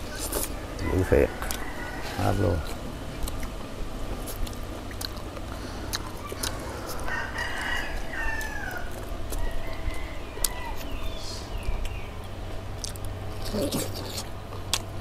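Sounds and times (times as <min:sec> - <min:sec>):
rooster crowing: 0:00.1 - 0:03.0, 0:05.7 - 0:11.5.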